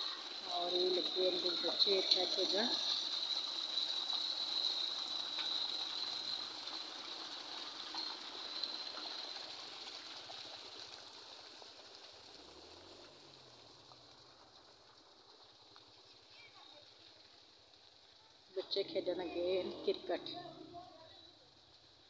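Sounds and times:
water rushing in channel: 0:00.0 - 0:21.9.

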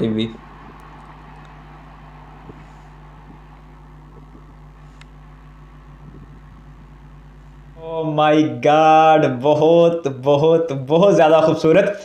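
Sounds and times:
distant freight train drone: 0:00.0 - 0:08.2.

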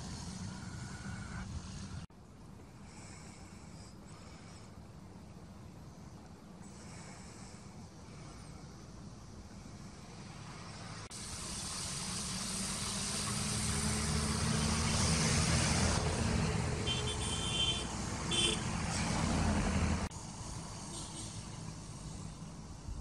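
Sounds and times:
rushing hiss: 0:00.0 - 0:02.1, 0:06.6 - 0:23.0
vehicle engine running: 0:08.2 - 0:23.0.

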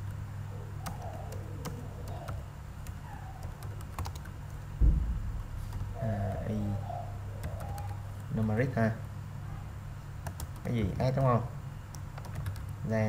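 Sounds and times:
dull thump: 0:04.8 - 0:05.6.

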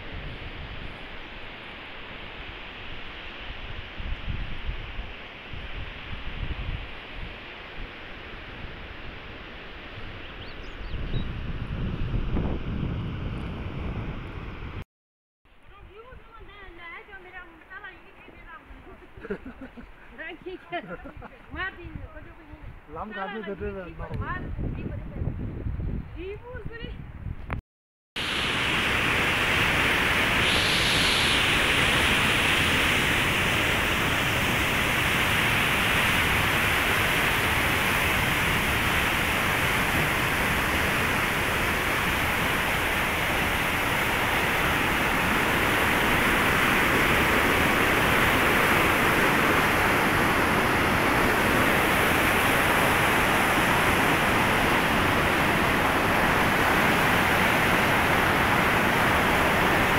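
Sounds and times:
river rushing over boulders: 0:28.2 - 0:59.9.

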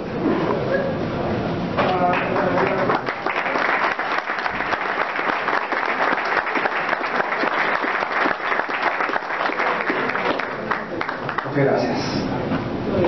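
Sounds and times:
audience applauding: 0:02.0 - 0:11.8.

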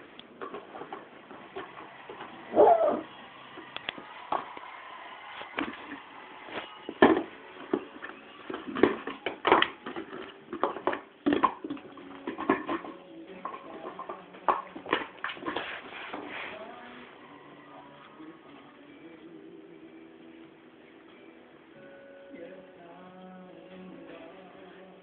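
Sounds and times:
puppy whimpering yip: 0:02.5 - 0:03.0.

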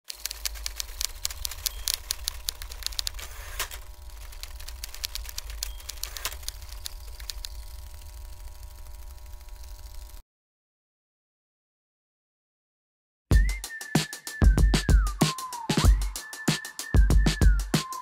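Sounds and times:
rapid irregular clicking: 0:00.0 - 0:10.2
faint hum: 0:00.2 - 0:10.2.

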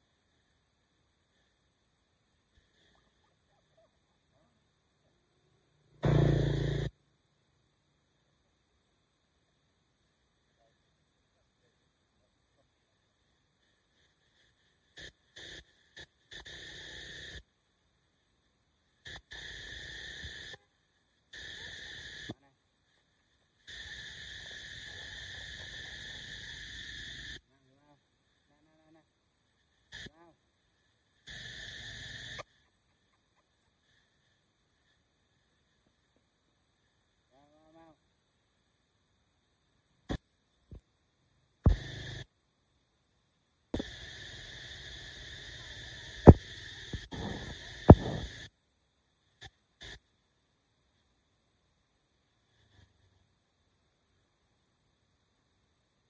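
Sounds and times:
high-pitched insect drone: 0:00.0 - 0:07.2, 0:08.3 - 0:42.8, 0:43.8 - 0:50.3
outdoor background rumble: 0:06.0 - 0:06.9, 0:46.2 - 0:48.4
steady hiss: 0:06.0 - 0:06.9, 0:13.5 - 0:40.8, 0:41.6 - 0:42.3, 0:43.8 - 0:50.1
dull low thumps: 0:47.1 - 0:48.3.

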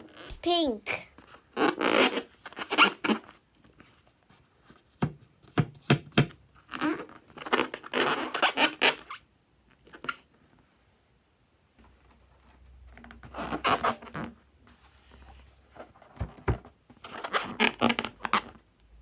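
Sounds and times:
balloon rubbery rustling and squeaks: 0:00.0 - 0:05.0, 0:06.5 - 0:10.3, 0:12.0 - 0:18.7.

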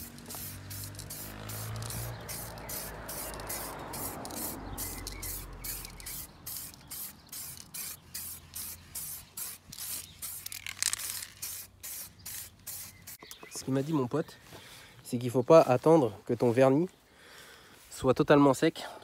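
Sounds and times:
aerosol spray can bursts: 0:00.0 - 0:13.2.

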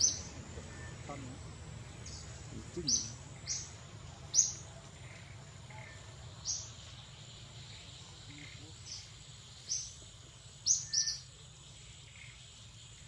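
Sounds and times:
faint high whine: 0:00.0 - 0:13.0.

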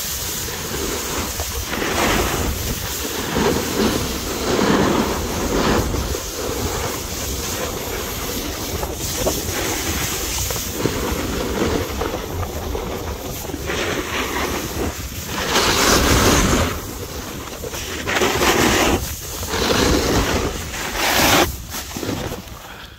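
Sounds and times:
wind buffeting microphone: 0:00.0 - 0:22.5
snowboard scraping over snow: 0:00.0 - 0:22.8.

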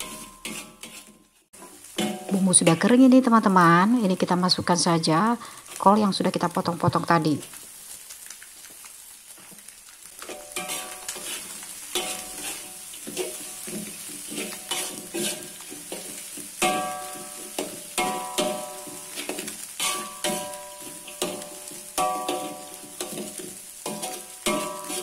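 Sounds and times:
metal spatula scraping wok: 0:00.0 - 0:04.0, 0:10.2 - 0:25.0
light sizzle of frying: 0:00.0 - 0:25.0.

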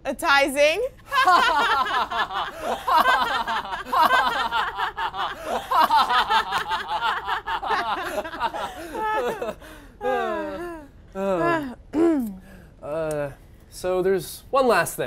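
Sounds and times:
man laughing loudly: 0:01.1 - 0:10.8.

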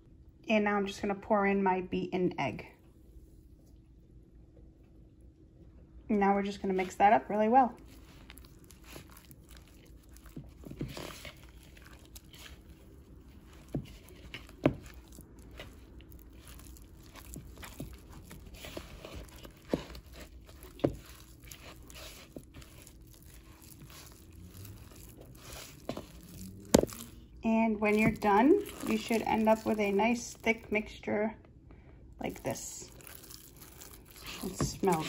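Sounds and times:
spatula squishing and scraping: 0:06.6 - 0:31.0, 0:32.2 - 0:35.0.

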